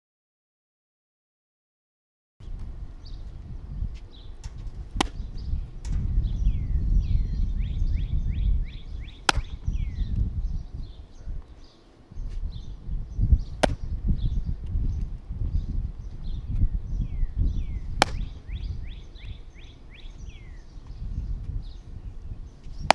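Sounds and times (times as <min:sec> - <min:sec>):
birds chirping: 0:02.4 - 0:22.9
wind rumble on microphone: 0:02.4 - 0:22.9
baseball popping into catcher's mitt: 0:04.4 - 0:06.0, 0:09.2 - 0:09.8, 0:13.5 - 0:14.0, 0:17.9 - 0:18.6.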